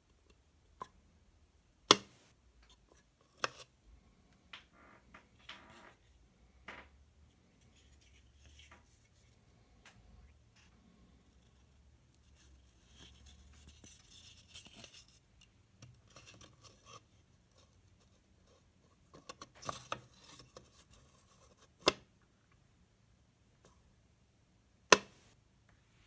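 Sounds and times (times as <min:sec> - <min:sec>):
taps and scrapes: 0:01.9 - 0:03.7, 0:07.5 - 0:10.0, 0:11.4 - 0:22.1.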